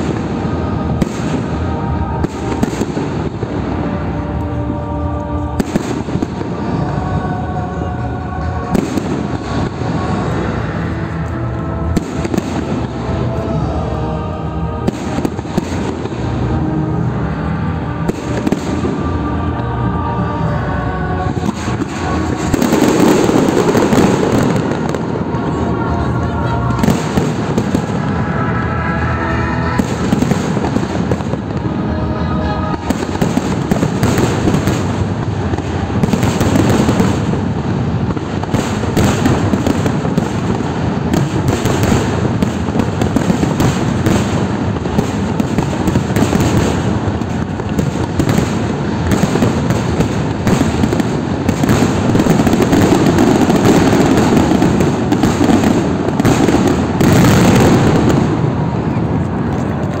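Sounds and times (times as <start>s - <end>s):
firework shell bursts and crackling: 0.0s - 4.7s, 32.6s - 60.0s.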